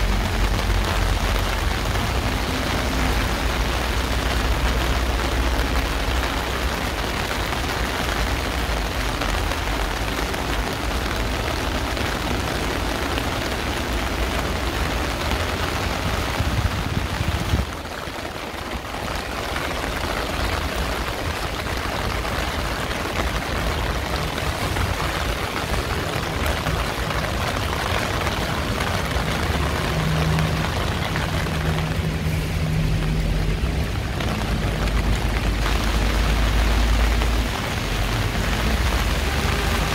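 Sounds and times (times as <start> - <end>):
heavy rain pouring: 0.0 - 39.9
traffic rumbling: 0.0 - 39.9.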